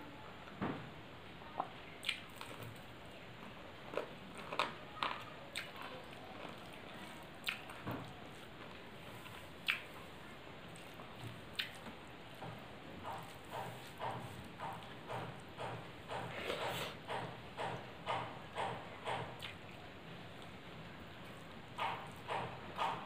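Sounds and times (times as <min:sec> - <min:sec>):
wet mouth smacks: 0:09.6 - 0:09.9, 0:11.6 - 0:11.8.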